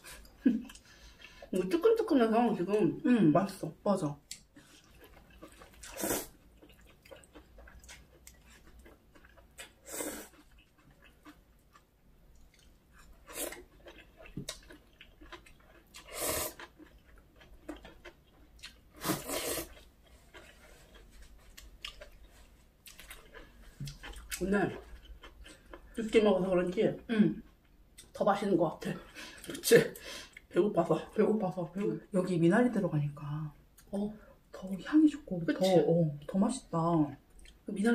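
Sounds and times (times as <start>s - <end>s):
chewing food: 0.0s - 2.8s, 4.2s - 28.2s, 37.3s - 37.7s.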